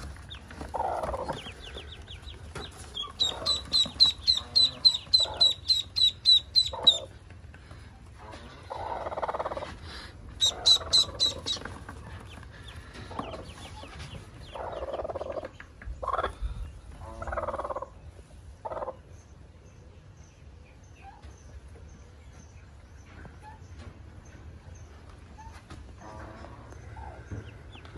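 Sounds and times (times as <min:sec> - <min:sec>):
hen clucking: 0:00.0 - 0:19.1
ducklings peeping: 0:00.0 - 0:27.9.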